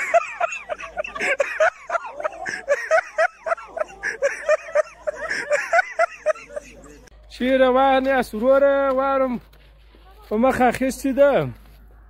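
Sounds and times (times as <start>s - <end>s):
people laughing: 0.0s - 7.1s.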